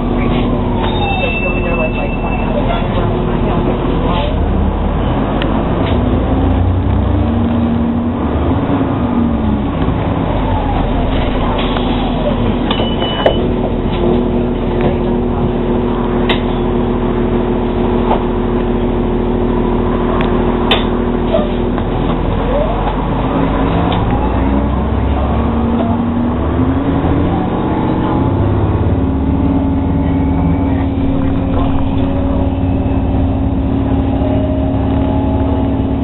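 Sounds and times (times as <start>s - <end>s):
bus body rattles and clicks: 0.0s - 36.0s
bus drivetrain and road noise: 0.0s - 36.0s
hybrid drive whine: 28.9s - 36.0s.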